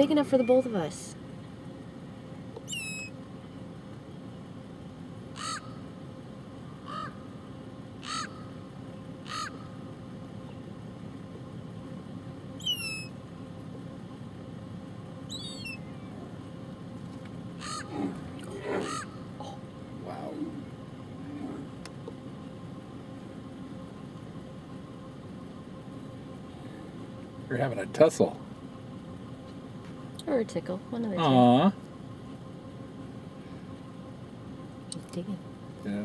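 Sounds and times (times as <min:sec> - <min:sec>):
low background rumble: 0:00.0 - 0:36.0
birds cawing: 0:02.6 - 0:03.2, 0:05.2 - 0:06.0, 0:06.7 - 0:10.6, 0:12.5 - 0:13.2, 0:15.2 - 0:16.5, 0:17.4 - 0:21.8
high falling bird squeals: 0:02.6 - 0:03.2, 0:12.6 - 0:13.2, 0:15.3 - 0:16.2, 0:17.6 - 0:17.9, 0:18.8 - 0:19.2.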